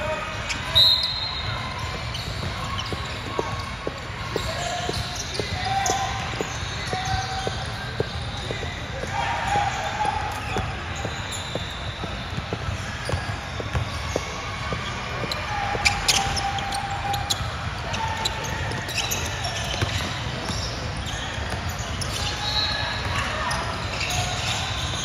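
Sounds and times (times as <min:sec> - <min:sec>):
echoing gym game noise: 0:00.0 - 0:25.0
basketball bouncing on hard court: 0:10.4 - 0:16.4, 0:18.2 - 0:21.8.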